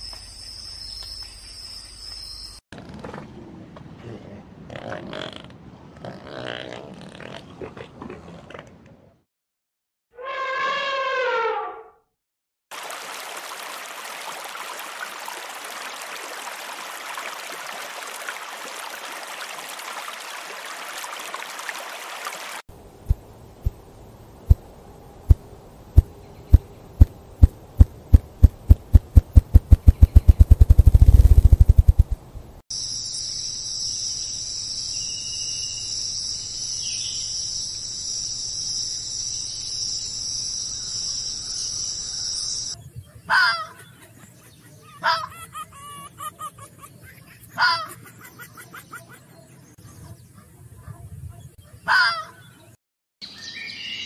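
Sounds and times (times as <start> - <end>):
low thumps speeding into whirr: 27.0 - 32.6
high insect buzz: 32.8 - 42.7.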